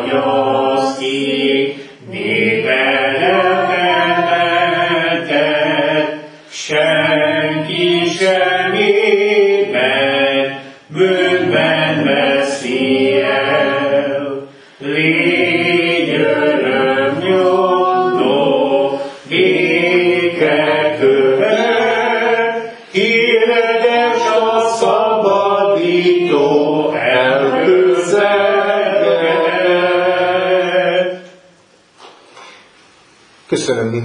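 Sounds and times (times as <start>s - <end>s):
congregation singing a hymn: 0.0s - 31.6s.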